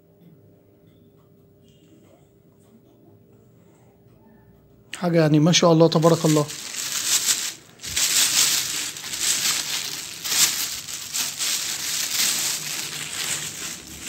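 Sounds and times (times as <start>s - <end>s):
plastic bags crinkling and rustling: 5.8s - 14.0s.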